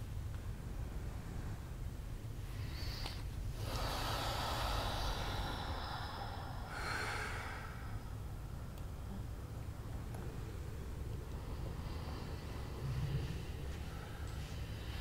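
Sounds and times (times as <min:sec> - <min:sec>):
low hum: 0:00.0 - 0:15.0
breathy exhale hisses: 0:02.5 - 0:08.3.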